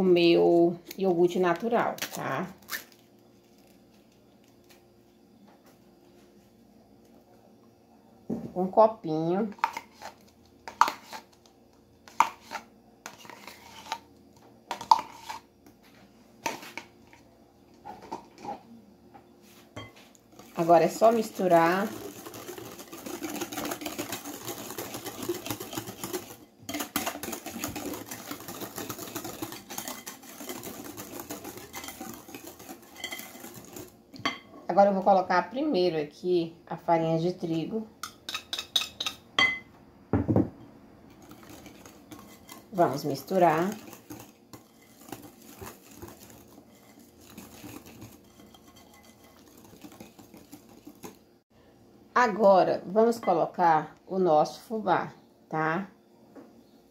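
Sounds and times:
wire whisk beating batter: 9.5 - 11.4, 12.1 - 14.1, 14.7 - 15.4, 19.8 - 34.4, 38.0 - 39.6, 41.1 - 51.2.

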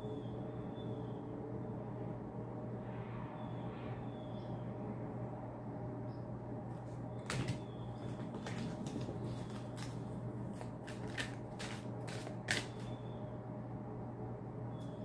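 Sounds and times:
steady low hum: 0.0 - 15.0
cards being shuffled: 7.2 - 12.9.

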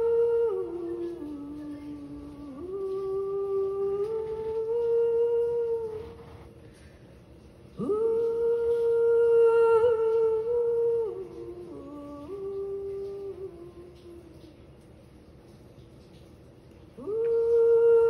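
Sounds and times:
woman vocalizing held notes: 0.0 - 6.6.

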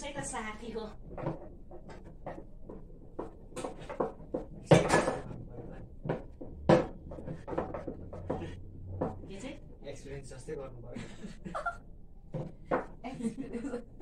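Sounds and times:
rolling pin on wooden board: 0.9 - 9.4, 12.3 - 13.0
utensils knocking and clinking: 1.0 - 9.6.

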